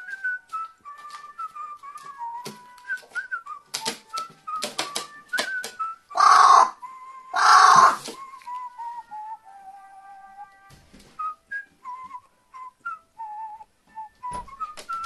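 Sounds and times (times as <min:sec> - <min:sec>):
crow calling: 0:06.1 - 0:06.8, 0:07.4 - 0:08.1.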